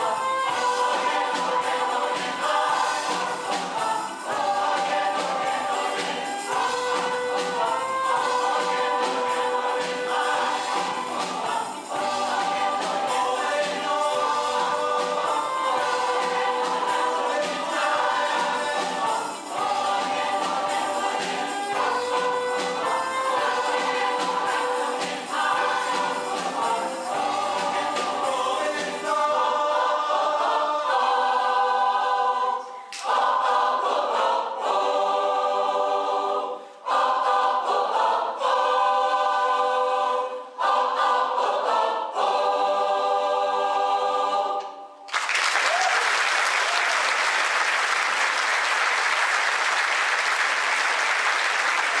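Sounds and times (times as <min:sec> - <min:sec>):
choir singing a pop song: 0:00.0 - 0:45.8
audience applause: 0:45.1 - 0:52.0.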